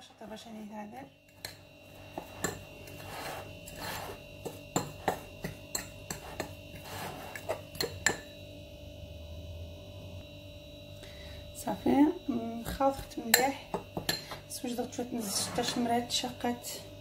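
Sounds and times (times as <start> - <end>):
faint hum: 0.0 - 17.0
fork scraping in bowl: 1.3 - 8.2, 15.2 - 16.0.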